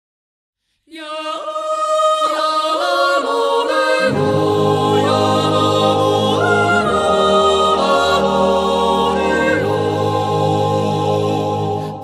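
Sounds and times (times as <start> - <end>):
voices yodelling in harmony: 1.0 - 12.0
deep held accompaniment: 4.1 - 12.0.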